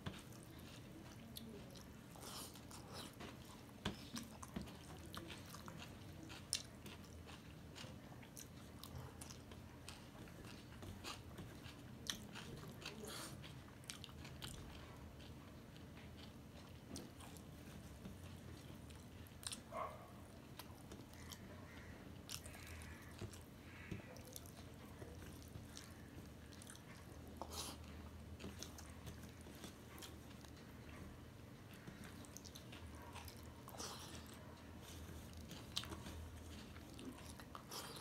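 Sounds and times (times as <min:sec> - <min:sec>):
man chewing: 0:00.1 - 0:38.0.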